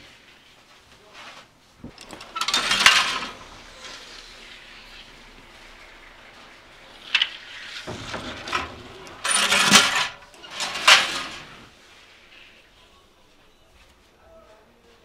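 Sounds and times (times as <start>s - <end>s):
wooden peel scraping stone floor: 1.2s - 12.7s
metal oven door clatter: 1.8s - 4.2s, 7.1s - 11.7s.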